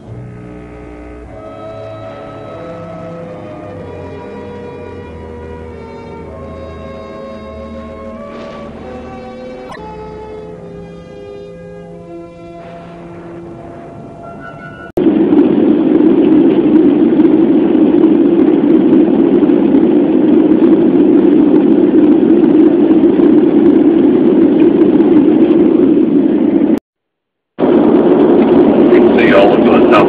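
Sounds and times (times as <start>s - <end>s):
music: 0.0s - 14.9s
airliner cabin noise: 0.0s - 26.8s, 27.6s - 30.0s.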